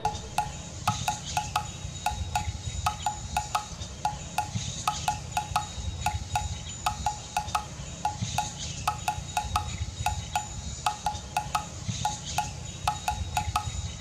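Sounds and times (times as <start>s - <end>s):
low rumble: 0.0s - 0.9s.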